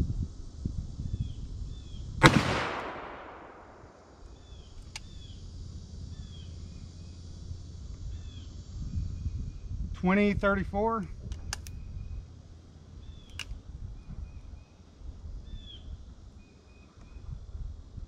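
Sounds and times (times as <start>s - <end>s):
revolver gunshot echoing: 2.2s - 4.2s.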